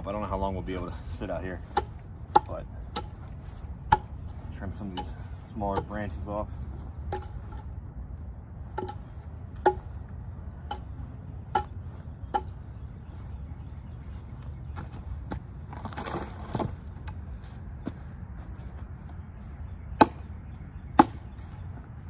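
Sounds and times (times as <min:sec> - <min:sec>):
branches rustling: 0:00.6 - 0:22.0
hatchet chopping branches: 0:01.6 - 0:06.1, 0:07.1 - 0:07.7, 0:08.7 - 0:10.0, 0:10.7 - 0:10.9, 0:11.5 - 0:12.6, 0:20.0 - 0:20.3, 0:21.0 - 0:21.3.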